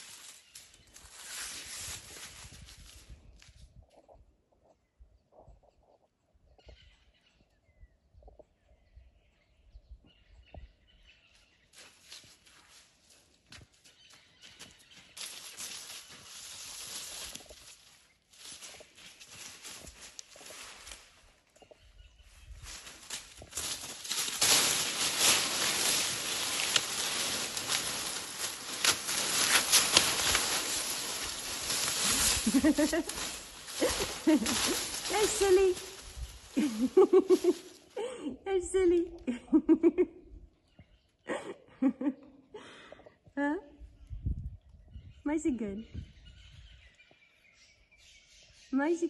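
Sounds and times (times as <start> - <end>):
feet rustling through dry grass: 0.0 - 3.9, 11.3 - 38.2
faint bird chirps: 4.0 - 12.0, 21.2 - 23.0, 43.6 - 48.8
twigs snapping: 22.7 - 37.8.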